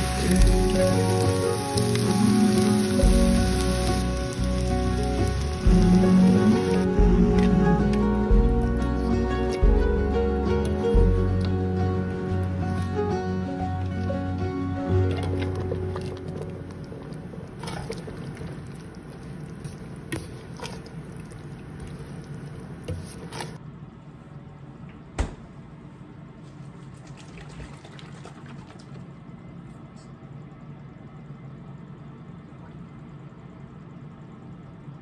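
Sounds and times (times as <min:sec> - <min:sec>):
background music: 0:00.0 - 0:16.7
curry bubbling in a pot: 0:15.1 - 0:23.6.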